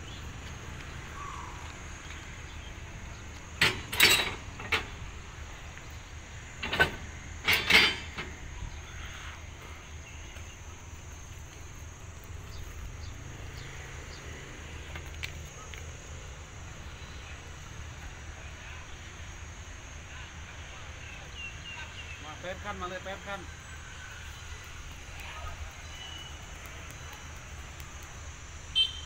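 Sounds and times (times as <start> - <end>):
metallic clanks of railway cars: 1.6 - 9.0
high insect buzz: 21.3 - 29.0.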